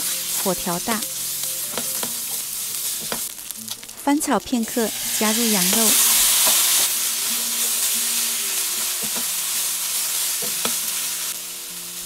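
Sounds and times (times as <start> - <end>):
meat sizzling in a pan: 0.0 - 12.0.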